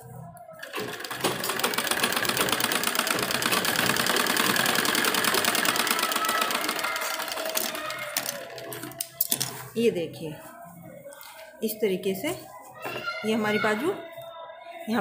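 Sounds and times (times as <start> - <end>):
sewing machine stitching: 0.6 - 9.0.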